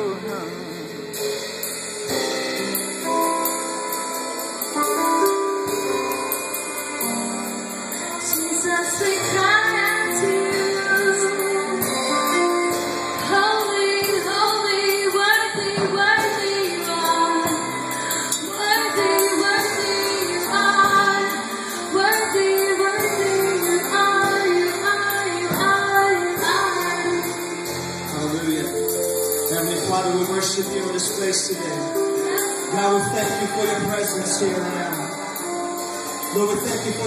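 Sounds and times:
worship band playing: 0:00.0 - 0:37.0
woman singing: 0:08.0 - 0:27.8.

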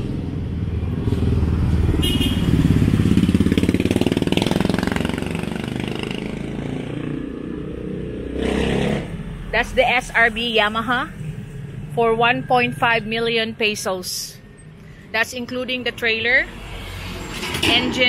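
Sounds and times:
motorcycle engine passing by: 0:00.0 - 0:09.5.

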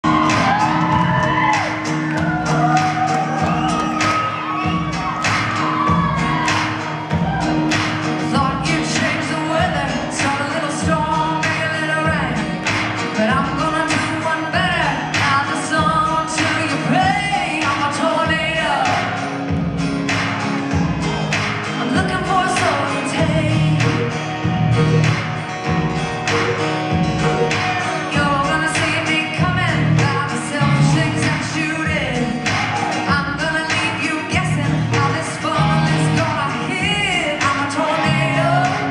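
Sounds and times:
lead vocal singing: 0:00.0 - 0:19.7, 0:21.7 - 0:25.5, 0:26.2 - 0:38.9
country band playing: 0:00.0 - 0:38.9
drum kit beating: 0:00.0 - 0:38.9
electric guitars: 0:00.0 - 0:38.9.

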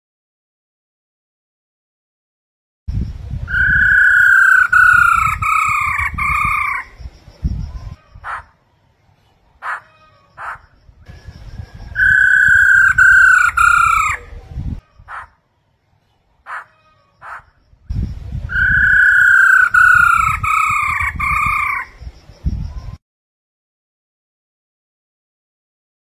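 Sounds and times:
bird whistled song phrases: 0:03.5 - 0:08.4, 0:10.4 - 0:14.3, 0:18.0 - 0:23.0.

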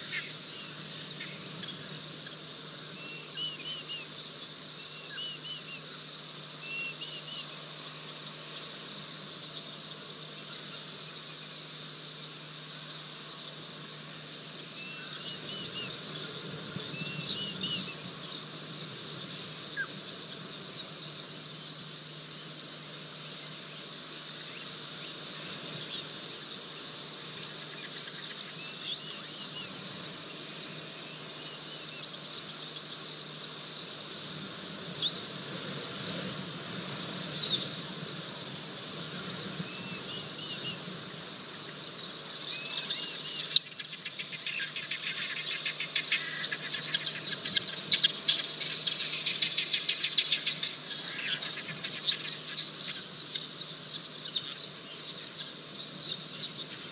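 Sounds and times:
high insect hum: 0:00.0 - 0:56.9
bird chirps: 0:42.4 - 0:56.9.

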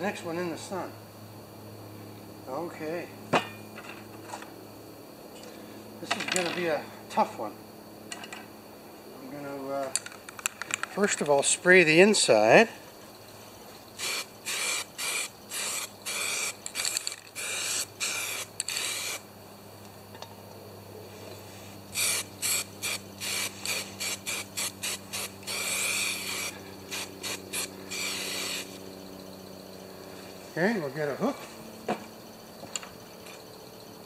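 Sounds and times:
aerosol spray can hissing: 0:14.0 - 0:19.2, 0:21.9 - 0:28.8.

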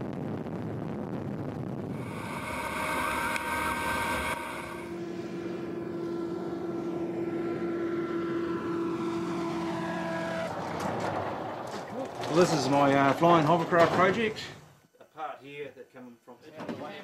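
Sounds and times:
hovercraft propeller droning: 0:01.9 - 0:10.9.

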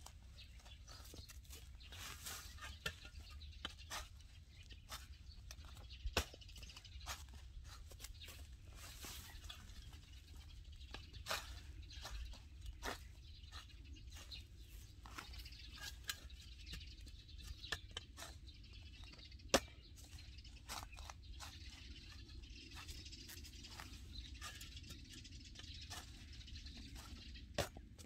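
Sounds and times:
spade digging into soil: 0:01.6 - 0:07.8, 0:10.9 - 0:21.5, 0:22.8 - 0:26.2.

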